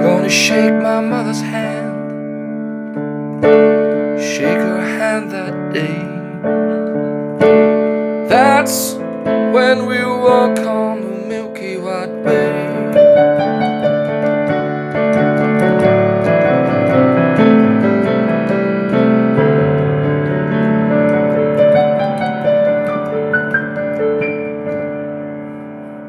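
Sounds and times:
keyboard playing gospel chords: 0:00.0 - 0:26.0.

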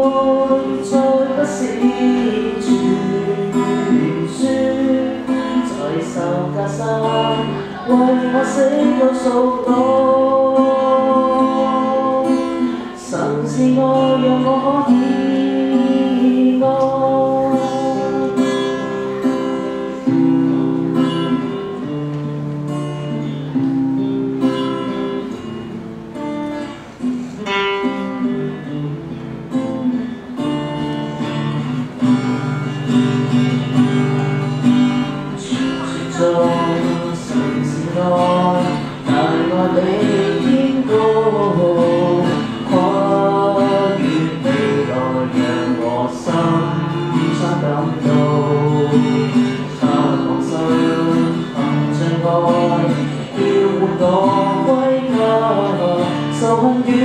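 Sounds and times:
person singing: 0:00.0 - 0:20.6, 0:34.1 - 0:57.0
acoustic guitar strumming: 0:00.0 - 0:57.0.

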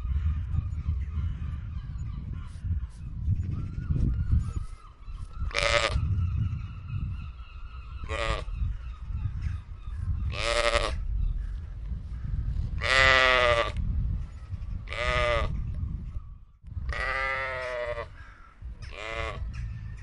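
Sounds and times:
sheep bleating: 0:16.9 - 0:18.1.

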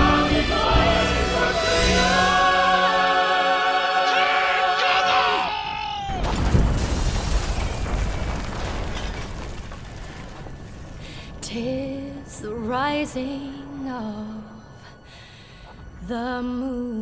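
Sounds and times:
chorus and orchestra chord: 0:00.0 - 0:04.8
loud rumbling boom: 0:06.1 - 0:11.3.

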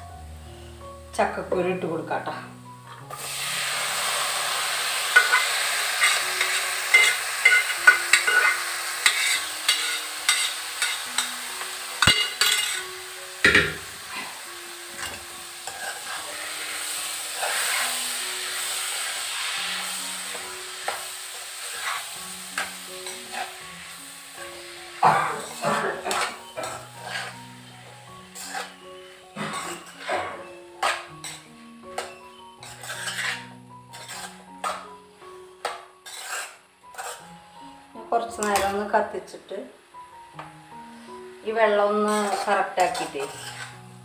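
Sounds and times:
food sizzling in a pan: 0:00.0 - 0:44.0
steel spoon scraping a pan: 0:04.9 - 0:14.4, 0:15.0 - 0:24.0, 0:24.6 - 0:35.0, 0:35.6 - 0:37.4, 0:42.0 - 0:43.9.

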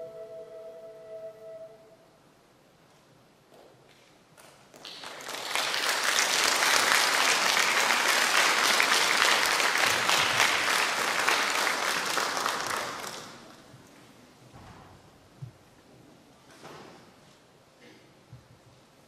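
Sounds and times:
audience applauding: 0:04.7 - 0:13.6.

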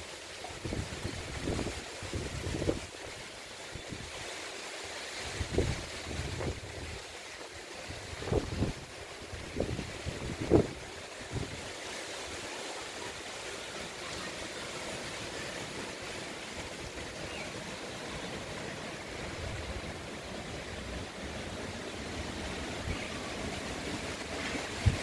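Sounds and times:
wind buffeting microphone: 0:00.6 - 0:02.9, 0:05.4 - 0:07.0, 0:07.9 - 0:11.6, 0:23.8 - 0:25.0.

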